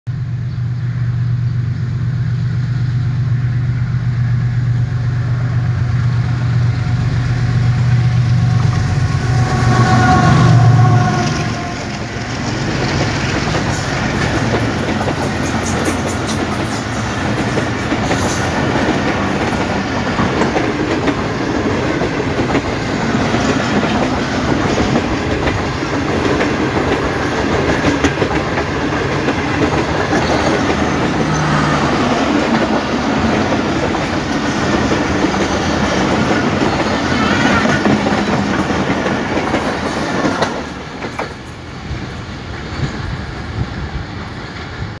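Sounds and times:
train wheels rumbling on rails: 0.1 - 45.0
clickety-clack over rail joints: 10.8 - 45.0.

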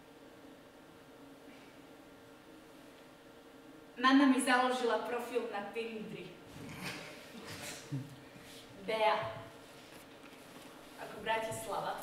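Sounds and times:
faint steady hum: 0.0 - 12.0
soft rustle: 8.4 - 12.0.

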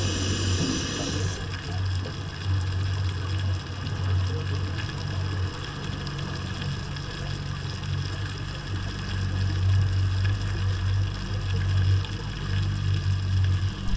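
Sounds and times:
steady hiss: 0.0 - 1.6
low droning underwater hum: 0.0 - 13.9.

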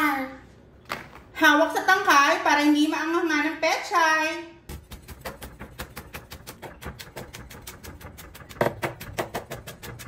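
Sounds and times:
knife chopping on wooden board: 4.7 - 10.0.

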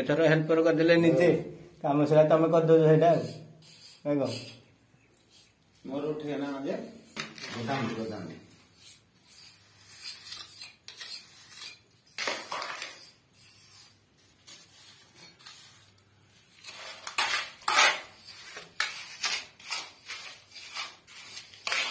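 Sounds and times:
trowel scraping a metal pan: 6.7 - 15.9, 16.5 - 21.9.

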